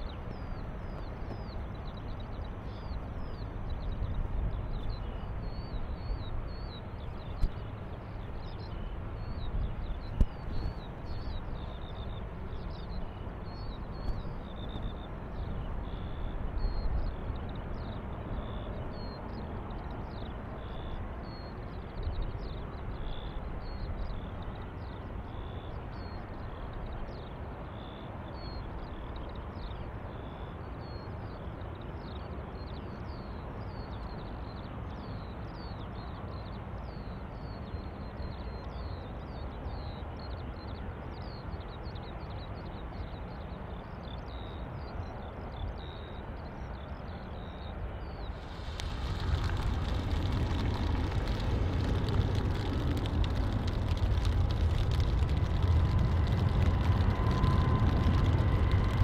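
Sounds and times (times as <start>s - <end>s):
distant jet airliner rumble: 48.1s - 59.0s.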